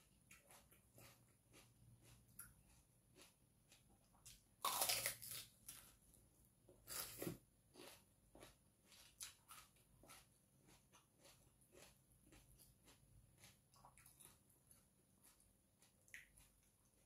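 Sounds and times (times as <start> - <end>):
crunchy bites: 4.2 - 5.9
chewing clicks: 15.2 - 17.0.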